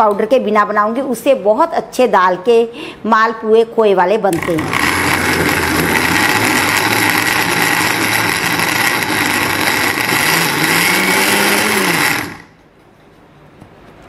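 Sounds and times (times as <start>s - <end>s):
mixer grinder motor running: 4.3s - 12.6s.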